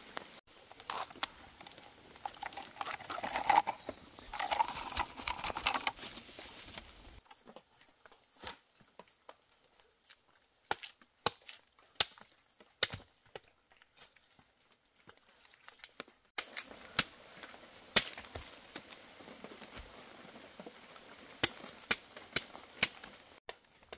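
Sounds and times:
rustle: 0.0s - 7.5s, 14.0s - 23.7s
small bird chirping: 0.6s - 5.5s.

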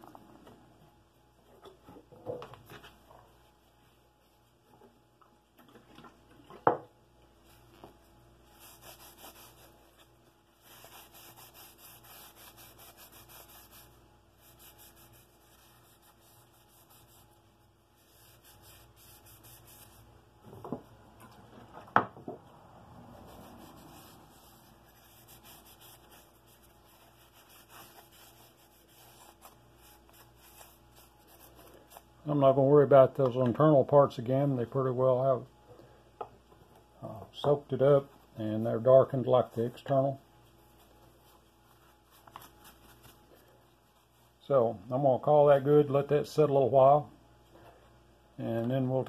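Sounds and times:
cloth wiping wood: 7.4s - 20.1s, 23.1s - 32.0s.

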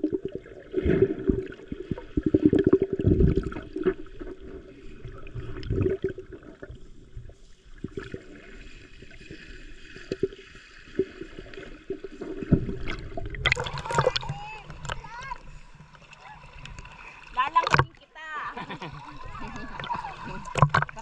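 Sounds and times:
underwater sloshing and gurgling: 0.0s - 21.0s
small underwater clicks: 19.6s - 21.0s.

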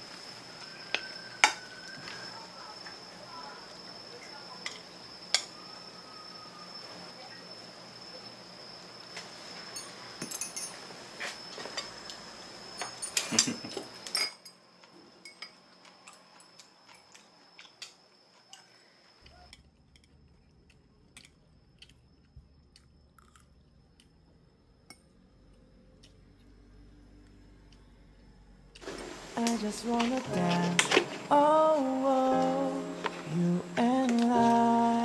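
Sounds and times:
utensils and dishes clattering: 9.8s - 10.8s, 12.8s - 14.6s.

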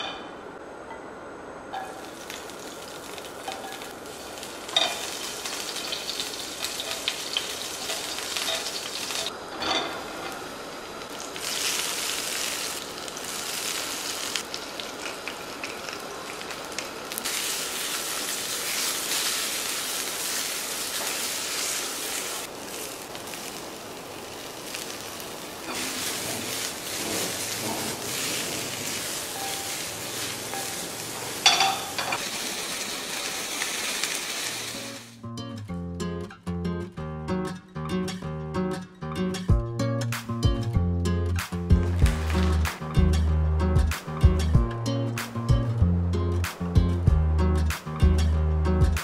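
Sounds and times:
food sizzling in a pan: 1.8s - 35.2s, 42.0s - 42.9s.

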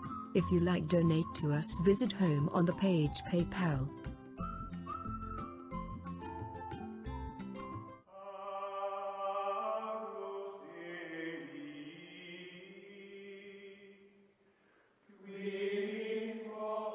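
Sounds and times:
choir-like chant: 8.1s - 14.2s, 15.1s - 16.9s.

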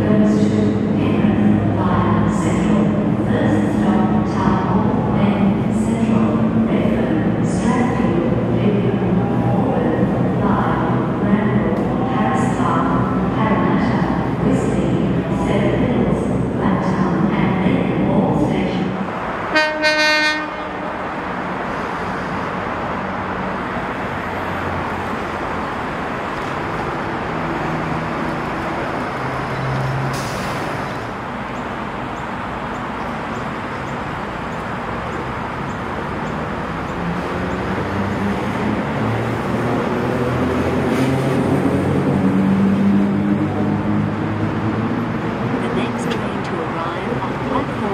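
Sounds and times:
train wheels and motors rumbling: 0.0s - 47.9s
train horn toot: 19.5s - 20.9s.

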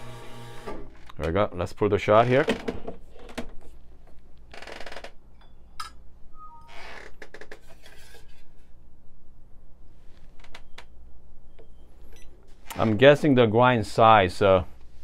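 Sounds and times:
rustling scrapes: 7.6s - 8.8s.

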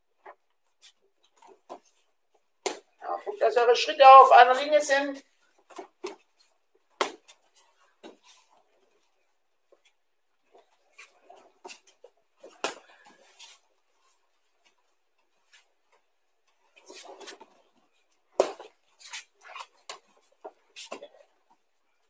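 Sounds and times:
bare feet on mats: 0.1s - 22.0s.

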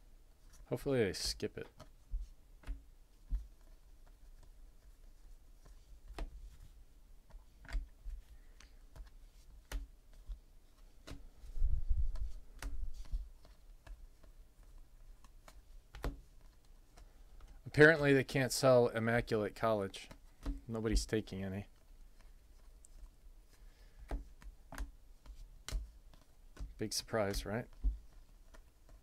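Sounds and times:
trading cards being flipped: 7.3s - 17.6s.

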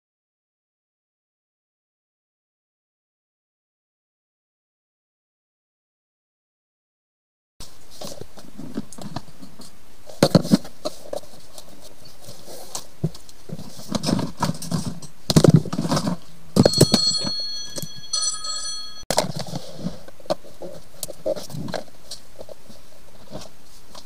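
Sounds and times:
handling knocks and rattles: 7.9s - 19.6s
electronic phone ringtone: 16.6s - 19.0s.

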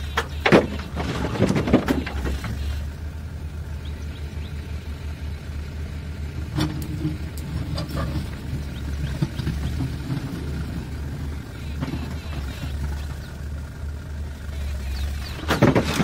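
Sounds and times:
diesel engine running: 0.0s - 16.0s
concrete blocks clattering: 0.2s - 2.6s, 15.4s - 16.0s.

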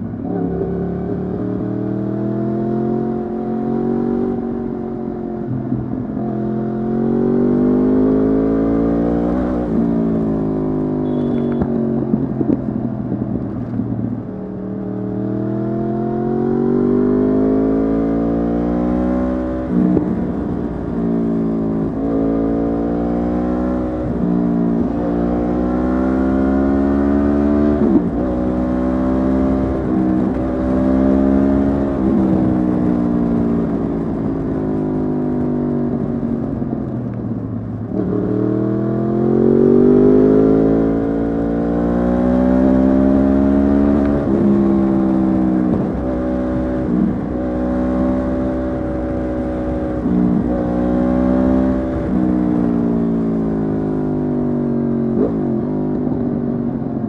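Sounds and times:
motorcycle engine revving: 37.7s - 56.8s.

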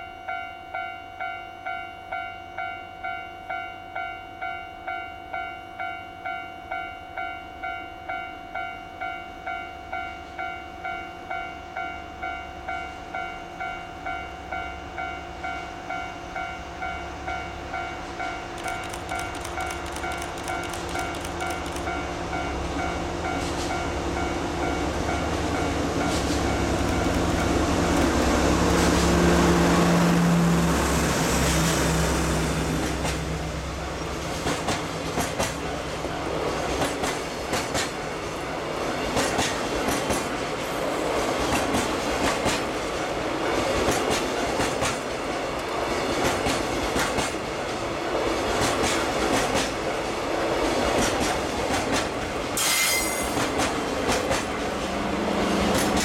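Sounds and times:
diesel locomotive engines at full throttle: 14.9s - 56.0s
train rolling rumble: 15.5s - 56.0s
wheels clacking over rail joints: 18.5s - 22.0s, 25.0s - 29.2s.

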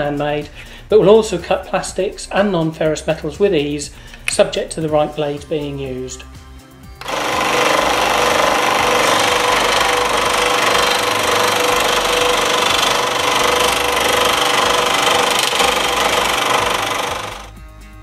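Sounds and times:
scroll saw cutting metal: 7.0s - 17.5s.

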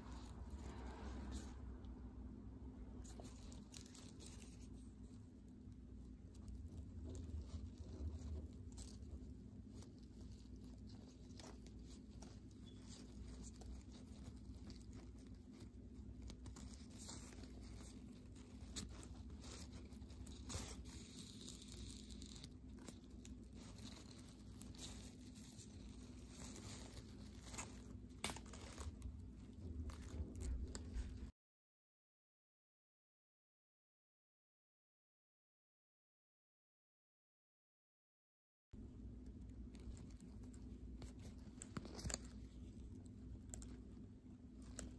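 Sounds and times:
fabric rustling and crinkling: 0.0s - 1.7s, 2.9s - 31.3s, 39.4s - 44.9s
faint steady hum: 0.0s - 31.3s, 38.8s - 44.9s.

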